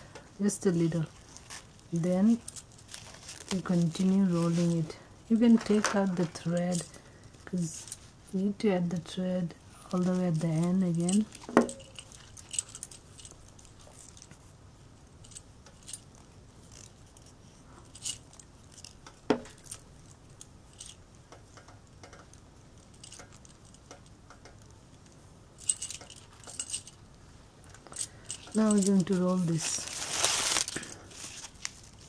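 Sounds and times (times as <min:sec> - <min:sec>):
bangles clinking: 0:01.2 - 0:04.8, 0:09.9 - 0:14.4, 0:15.2 - 0:21.0, 0:25.6 - 0:27.1, 0:27.8 - 0:31.4.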